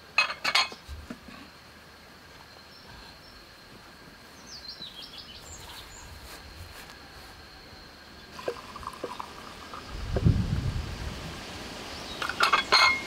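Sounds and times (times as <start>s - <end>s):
glass clinks: 0.2s - 0.7s, 12.2s - 13.0s
birds chirping: 4.3s - 6.5s
tea pouring into glasses: 8.3s - 10.2s.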